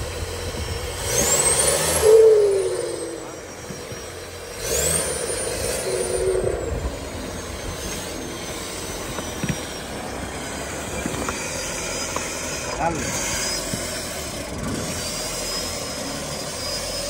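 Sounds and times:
engine revving under load: 0:00.0 - 0:17.0
turbo whistle: 0:01.2 - 0:08.2.

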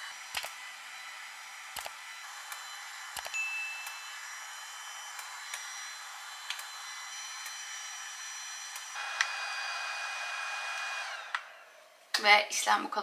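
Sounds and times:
device fan whirring: 0:00.0 - 0:12.1
device flash clicks: 0:00.3 - 0:00.6, 0:01.7 - 0:04.1, 0:06.4 - 0:06.8
faint high tones: 0:03.3 - 0:05.0.

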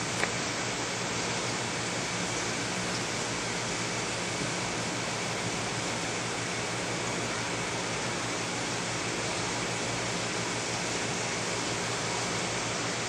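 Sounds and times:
aquarium water rushing: 0:00.0 - 0:13.0.

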